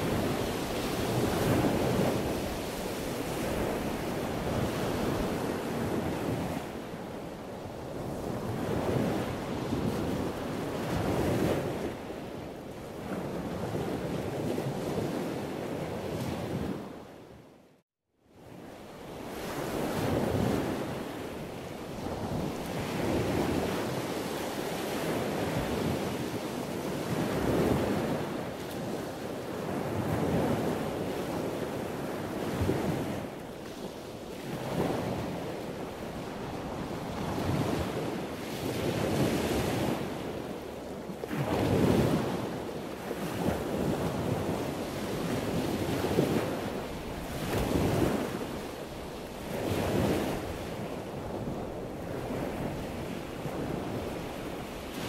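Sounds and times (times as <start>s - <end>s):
rushing surf-like noise: 0.0s - 4.4s.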